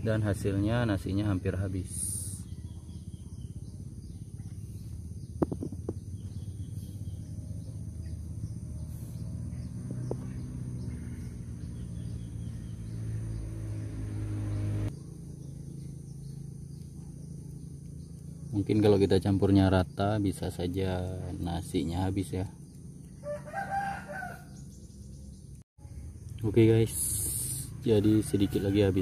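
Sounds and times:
steady low rumble: 0.0s - 13.3s.

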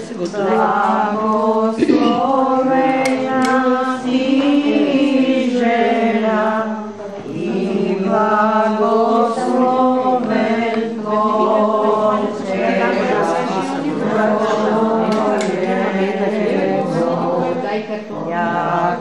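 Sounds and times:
voices singing a chant: 0.0s - 19.0s.

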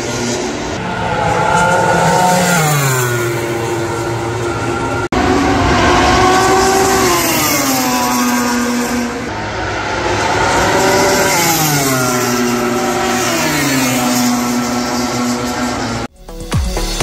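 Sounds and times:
racing motorcycle engines revving: 0.0s - 16.1s.

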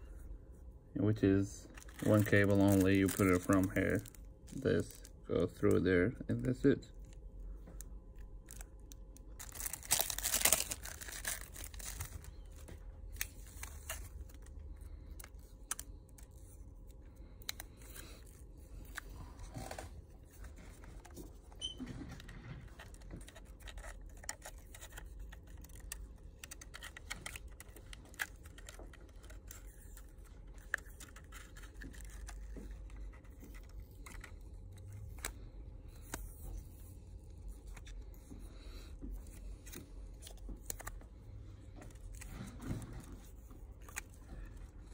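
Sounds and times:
plastic film ripping: 1.8s - 5.1s, 8.4s - 14.5s.

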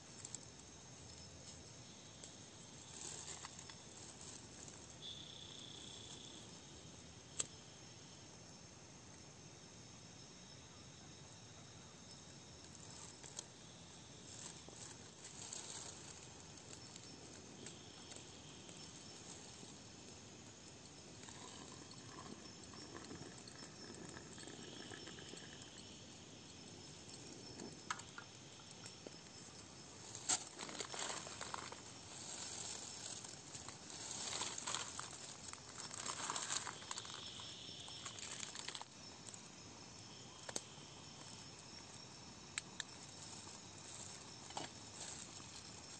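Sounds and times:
crickets chirring: 0.0s - 45.9s
camp cookware clinking: 19.8s - 28.9s.

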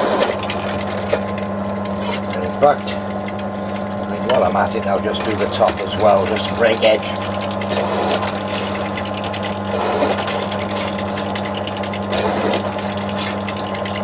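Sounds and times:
cutter scraping metal: 0.0s - 1.2s, 1.8s - 3.3s, 4.8s - 14.0s
drill press motor humming: 0.0s - 14.0s.

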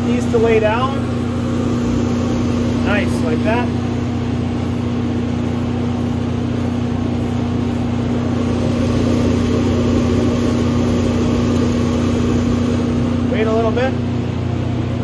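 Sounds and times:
exhaust fan motor humming: 0.0s - 15.0s
spray paint can hissing: 4.6s - 7.9s.

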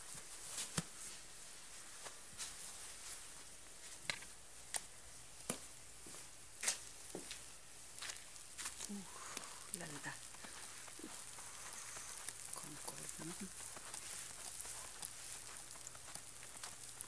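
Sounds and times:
faint hiss: 0.0s - 17.0s
nylon coat rustling: 10.0s - 17.0s.

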